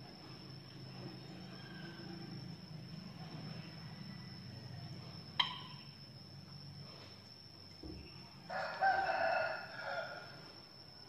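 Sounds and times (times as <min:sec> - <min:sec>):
rooster crowing: 0:01.2 - 0:02.6, 0:08.4 - 0:10.6.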